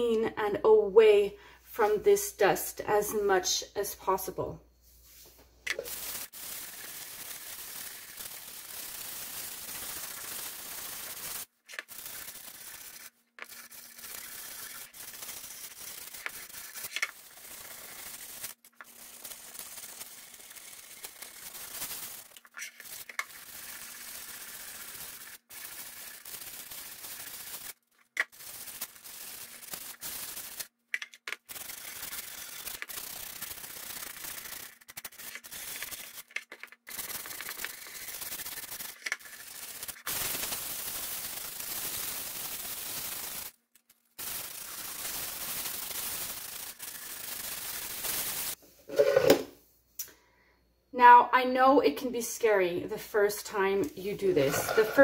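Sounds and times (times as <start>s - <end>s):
sandpaper sanding strokes: 5.9s - 30.7s, 31.4s - 43.6s, 44.2s - 48.6s.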